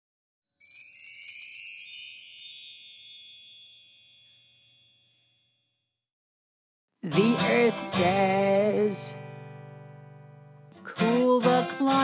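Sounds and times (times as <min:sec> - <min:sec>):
tinkling chime flourish: 0:00.4 - 0:05.9.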